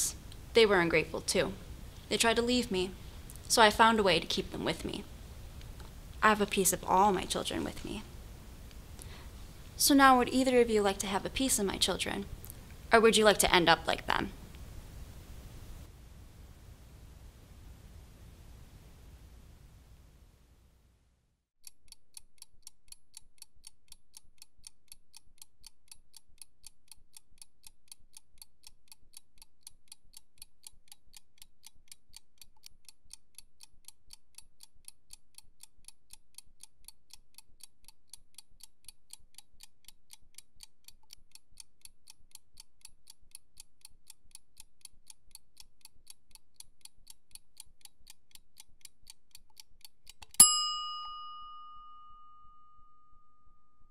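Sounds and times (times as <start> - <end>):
clock ticking: 2.1 - 5.7, 21.6 - 50.6.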